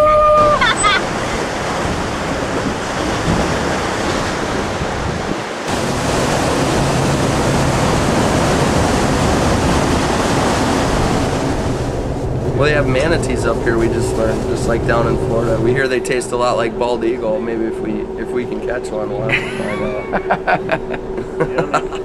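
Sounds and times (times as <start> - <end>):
wind rushing: 0.0 - 21.4
low hum: 5.7 - 22.0.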